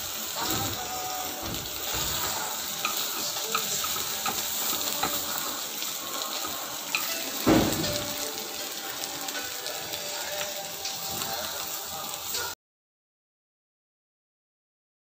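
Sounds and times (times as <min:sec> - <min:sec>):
food sizzling in a wok: 0:00.0 - 0:12.6
chopsticks ticking against pan: 0:02.2 - 0:08.7
dull thump: 0:07.5 - 0:08.1.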